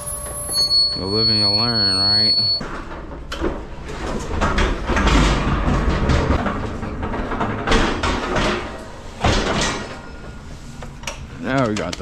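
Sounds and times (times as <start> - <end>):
pallet jack rumbling and rattling: 2.6 - 10.0.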